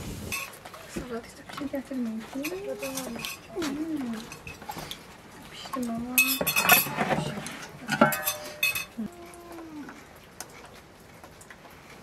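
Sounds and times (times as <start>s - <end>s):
pot clattering on metal tray: 0.3s - 5.0s, 6.0s - 9.0s
pot lid clanking: 6.2s - 9.0s.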